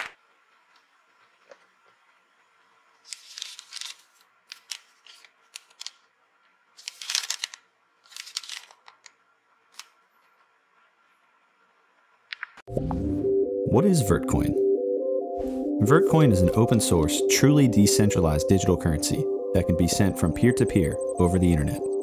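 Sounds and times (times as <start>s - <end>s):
plastic bag crinkling: 6.8s - 9.1s.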